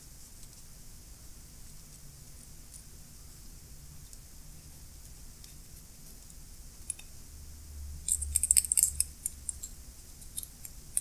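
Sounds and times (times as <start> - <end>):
toothpick scraping metal: 8.1 - 11.0.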